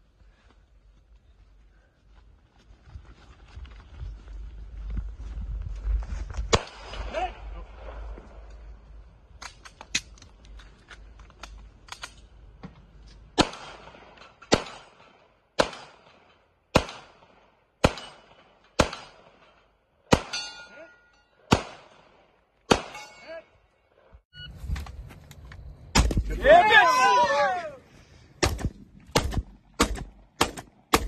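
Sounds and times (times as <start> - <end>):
steel plate ringing: 20.3 - 21.3, 22.9 - 23.4.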